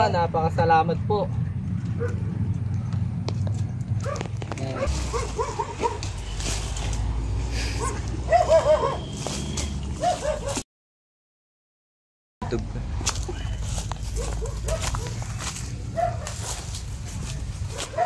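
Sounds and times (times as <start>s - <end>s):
dog barking: 2.0s - 2.4s, 4.0s - 6.1s, 7.8s - 9.1s, 10.0s - 10.6s, 14.1s - 16.6s, 17.7s - 18.0s
steady low rumble: 12.7s - 18.0s.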